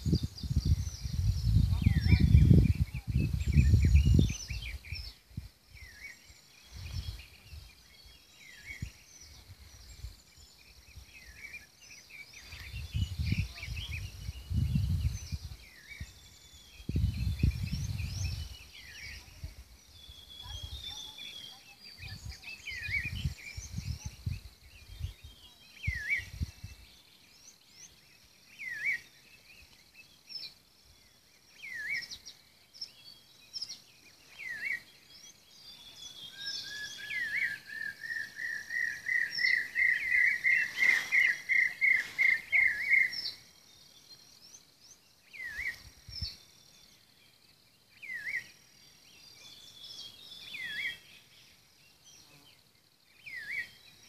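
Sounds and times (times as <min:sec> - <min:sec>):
wind buffeting microphone: 0:00.0 - 0:06.0, 0:06.7 - 0:10.2, 0:12.4 - 0:21.0, 0:21.9 - 0:26.9
birds chirping: 0:00.0 - 0:54.0.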